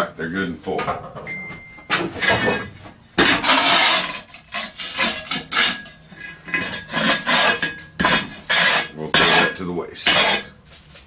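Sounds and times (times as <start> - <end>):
steel bar scraping across steel plate: 2.1 - 10.6.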